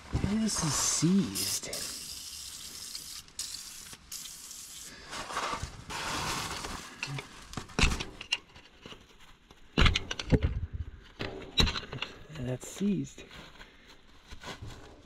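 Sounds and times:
rustling and handling noise: 0:00.0 - 0:01.4, 0:04.8 - 0:15.0
hiss: 0:00.5 - 0:05.1
sharp metal knocks and clicks: 0:09.7 - 0:10.6, 0:11.2 - 0:12.2.

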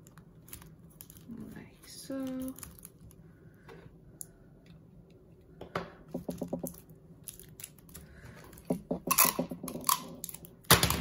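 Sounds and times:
plastic straws clicking and rustling: 0:00.0 - 0:03.2, 0:06.1 - 0:11.0.

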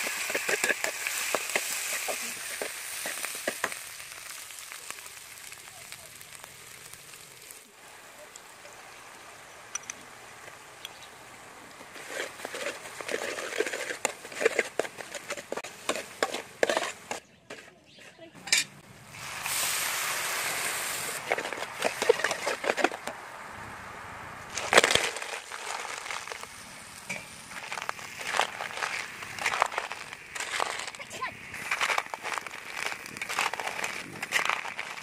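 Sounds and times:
metal spatula scraping a wok: 0:00.0 - 0:03.8, 0:11.9 - 0:18.7, 0:21.1 - 0:23.1
frying sizzle: 0:00.0 - 0:17.2, 0:19.0 - 0:35.0.

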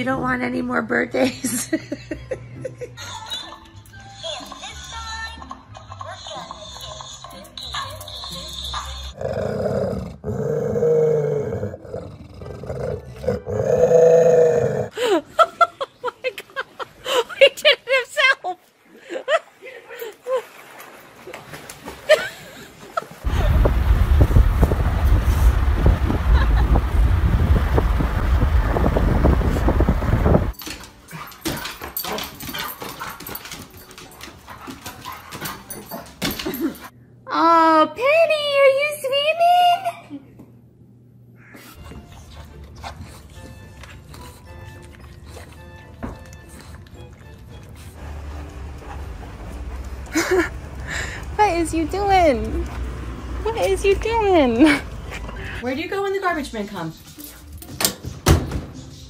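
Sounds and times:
animal growling: 0:09.2 - 0:14.9
wind buffeting car window: 0:23.2 - 0:30.6.

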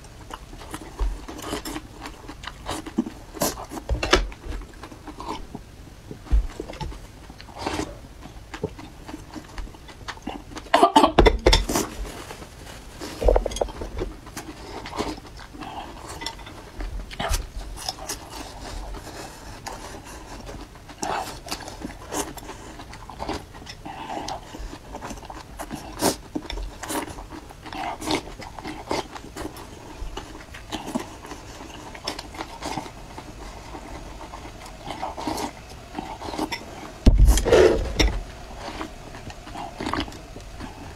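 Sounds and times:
slurping: 0:37.3 - 0:40.9.

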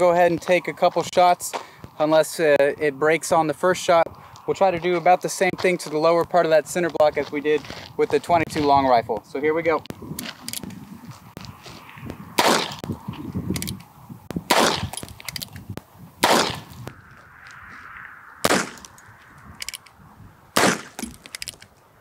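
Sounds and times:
revolver gunshots: 0:12.4 - 0:12.9, 0:14.5 - 0:15.1, 0:16.2 - 0:16.7, 0:18.4 - 0:19.0, 0:20.6 - 0:21.4.

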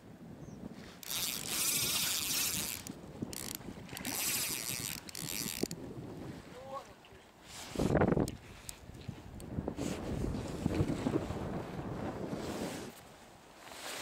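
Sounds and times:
fishing reel gears whirring: 0:01.0 - 0:05.8.

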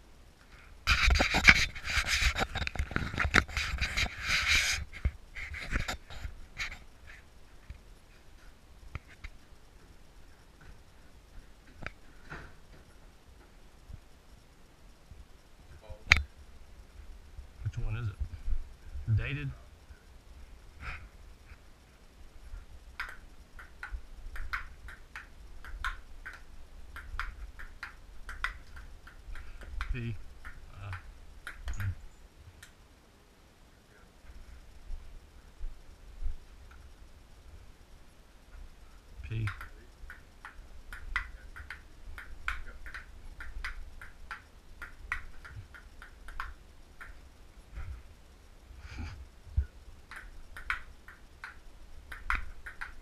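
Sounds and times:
table tennis ball clicking: 0:23.0 - 0:32.0, 0:39.4 - 0:47.2, 0:50.1 - 0:53.0.

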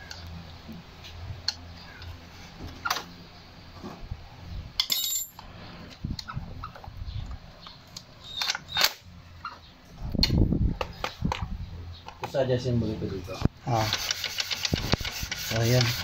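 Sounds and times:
metal tools clicking and knocking: 0:04.8 - 0:05.4.

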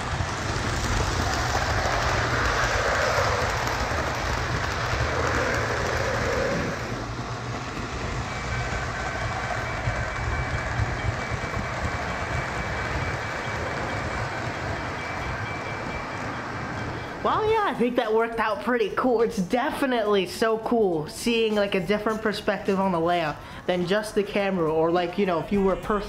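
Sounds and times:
model train wheels rumbling: 0:00.0 - 0:18.5.

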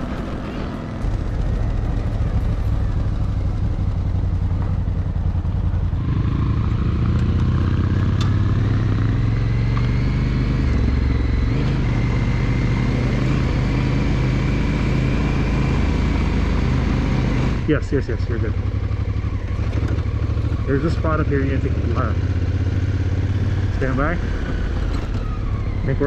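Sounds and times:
motorcycle engine under load: 0:00.0 - 0:26.0.

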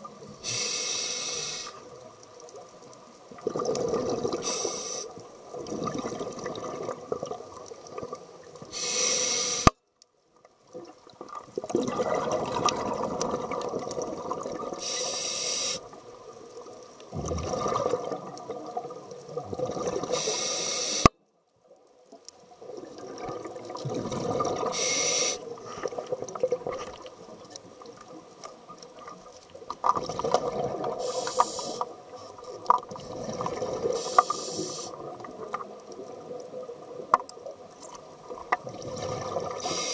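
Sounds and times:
hissing regulator inhalations: 0:00.4 - 0:01.9, 0:04.4 - 0:05.1, 0:08.7 - 0:09.8, 0:14.8 - 0:15.8, 0:20.1 - 0:21.1, 0:24.7 - 0:25.5, 0:31.0 - 0:31.9, 0:34.0 - 0:35.0, 0:39.6 - 0:39.9
bubbly regulator exhalations: 0:03.4 - 0:04.4, 0:11.7 - 0:14.8, 0:17.1 - 0:18.4, 0:23.0 - 0:25.1.

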